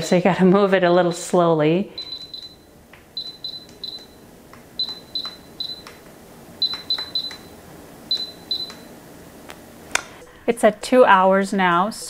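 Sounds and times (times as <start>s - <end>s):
cooker short high beeps: 2.0s - 4.2s.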